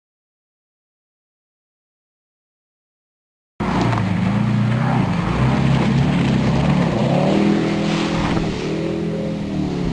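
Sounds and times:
jet boat engine revving: 3.6 - 9.9
water spray rushing: 6.4 - 9.9.

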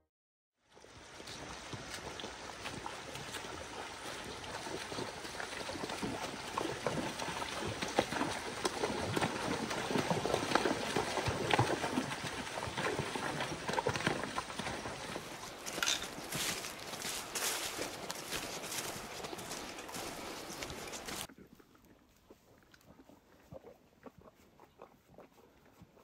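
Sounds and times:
horses splashing through water: 0.7 - 26.0
stream current rushing: 0.9 - 21.3.

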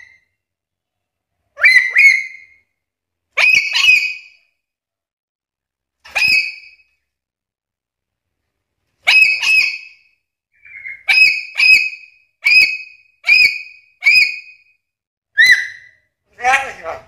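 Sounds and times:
parrot shrill calls: 1.6 - 2.6, 3.4 - 4.4, 6.1 - 6.8, 9.0 - 14.6, 15.4 - 16.1.

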